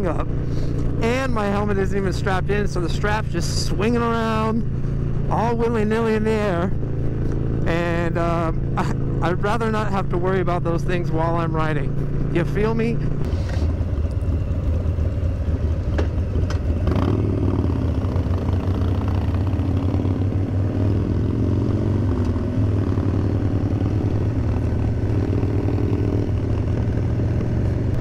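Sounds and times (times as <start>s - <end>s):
motorcycle engine idling: 13.0s - 20.5s.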